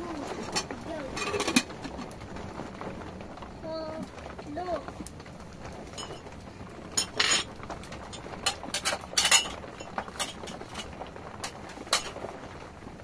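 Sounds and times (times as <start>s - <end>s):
metal dishes clinking in a basin: 7.0s - 7.5s.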